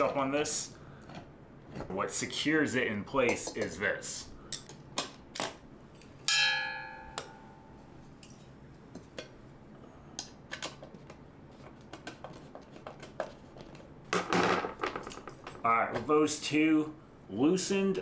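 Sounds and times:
metallic clink ringing: 0:06.3 - 0:07.8.

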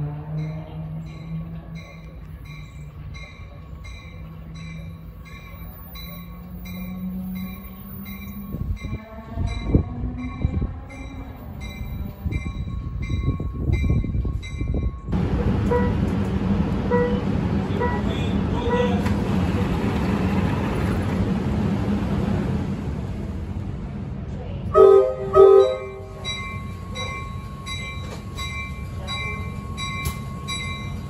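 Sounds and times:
train wheels rumbling: 0:00.0 - 0:31.0
warning bell ringing: 0:00.4 - 0:15.1, 0:25.6 - 0:31.0.

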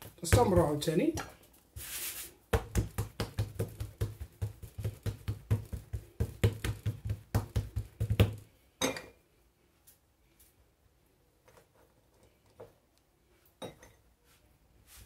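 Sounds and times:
hands patting dough: 0:00.0 - 0:08.5.

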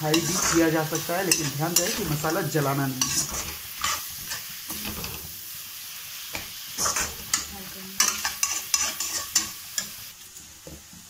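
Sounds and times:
metal spatula scraping a pan: 0:00.0 - 0:05.4, 0:06.3 - 0:10.1
soft sizzle of frying: 0:00.0 - 0:11.0.

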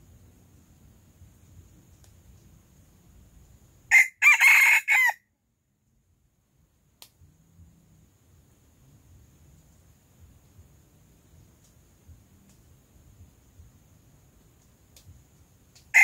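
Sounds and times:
rooster crowing: 0:03.9 - 0:05.2.

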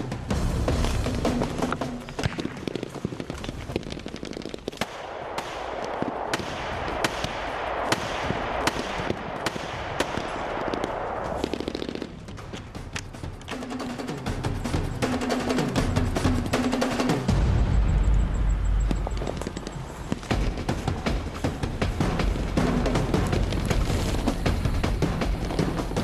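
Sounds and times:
rifle and automatic gunfire: 0:02.2 - 0:12.2.

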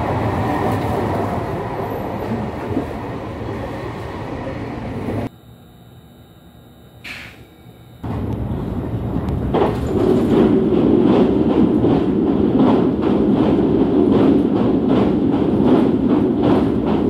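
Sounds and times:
train rumble inside carriage: 0:00.0 - 0:05.3, 0:08.0 - 0:17.0
wheels clicking over rails: 0:08.1 - 0:17.0.

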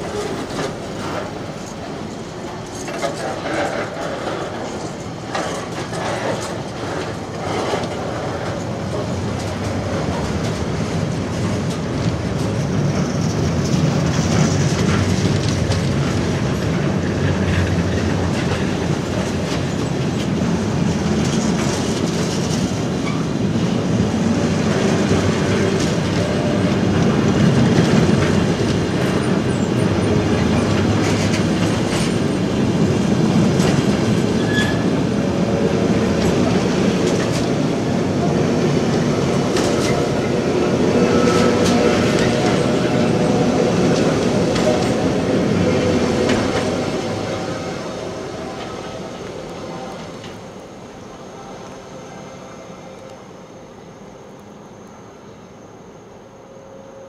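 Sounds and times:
wheels clicking over rail joints: 0:00.0 - 0:23.2
steel wheels rumbling on rails: 0:00.0 - 0:53.4.

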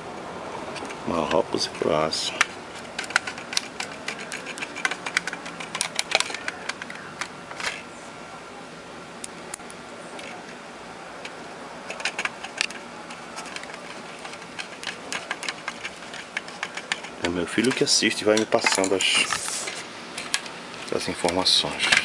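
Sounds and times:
screwdriver clicking on screws: 0:02.3 - 0:07.8, 0:11.9 - 0:19.0.

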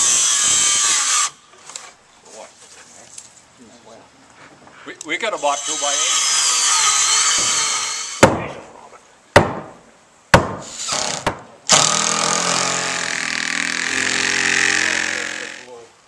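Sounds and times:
circular saw cutting wood: 0:00.0 - 0:01.4, 0:05.3 - 0:08.2, 0:10.6 - 0:15.8
power drill driving screw: 0:05.6 - 0:08.2, 0:10.6 - 0:15.7
sledgehammer blows on wood: 0:08.2 - 0:08.7, 0:09.4 - 0:13.7.

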